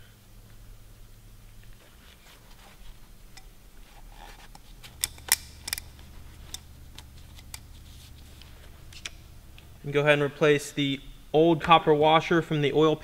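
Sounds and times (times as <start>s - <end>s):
paper towel wiping plastic: 7.1s - 8.8s.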